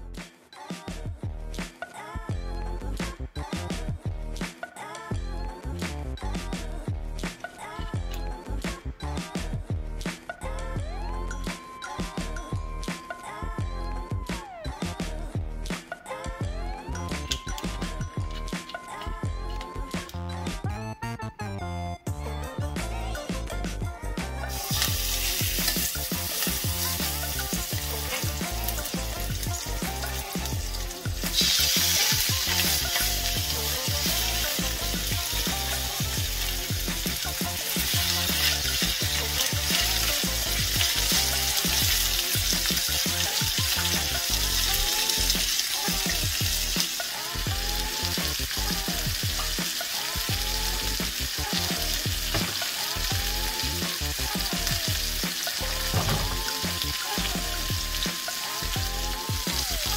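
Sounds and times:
chicken sizzling in oil: 24.5s - 59.9s.

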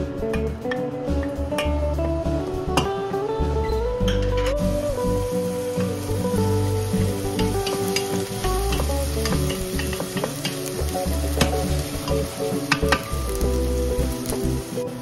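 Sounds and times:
soft background music: 0.0s - 15.0s
onion sizzling in oil: 4.0s - 15.0s.

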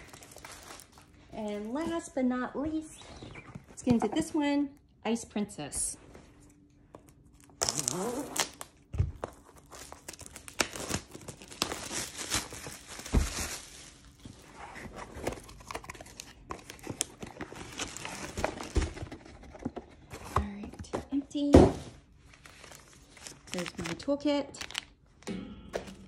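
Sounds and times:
plastic packaging crinkling: 0.0s - 1.8s, 7.3s - 19.2s, 22.2s - 25.2s.

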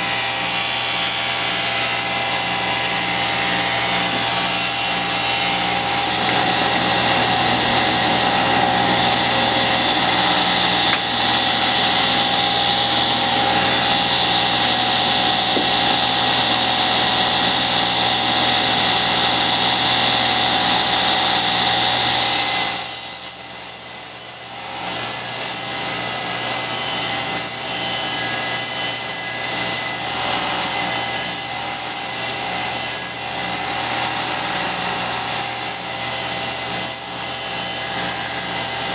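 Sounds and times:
table saw ripping wood: 0.0s - 38.9s.

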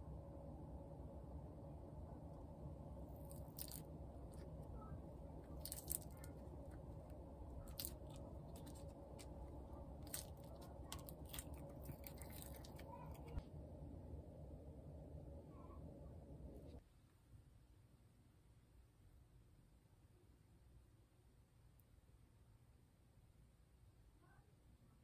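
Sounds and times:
low room hum: 0.0s - 25.0s.

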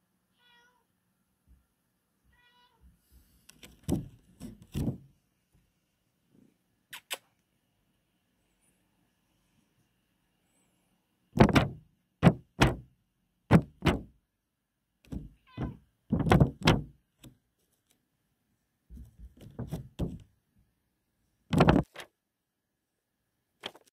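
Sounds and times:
dull thumps and rubbing knocks: 3.6s - 5.2s, 11.4s - 12.9s, 13.5s - 14.2s, 15.1s - 17.0s, 18.9s - 20.3s, 21.5s - 22.0s.

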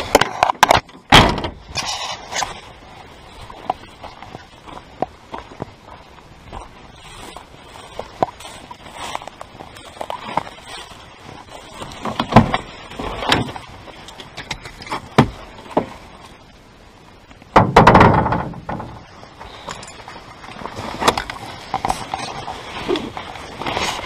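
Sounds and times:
truck door knocks and thumps: 1.1s - 1.6s, 17.6s - 19.0s.

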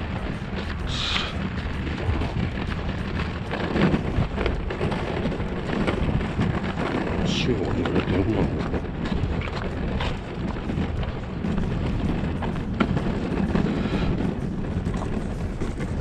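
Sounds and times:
hand cart rolling on concrete: 0.0s - 16.0s
small rattles and knocks: 0.0s - 16.0s
wind buffeting microphone: 0.0s - 16.0s.

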